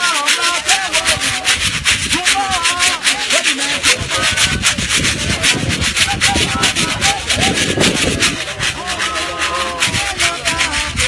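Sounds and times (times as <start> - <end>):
fast swishing beat: 0.0 - 11.0
choir singing: 8.4 - 11.0.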